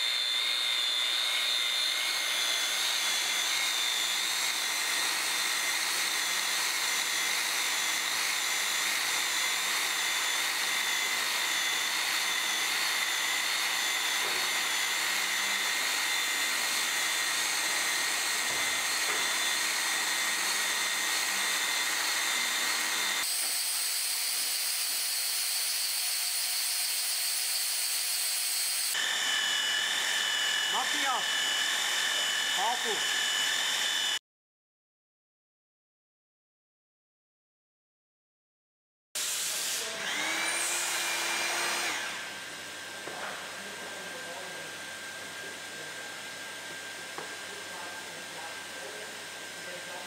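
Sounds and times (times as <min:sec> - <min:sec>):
plastic welder high whine: 0:00.0 - 0:34.2.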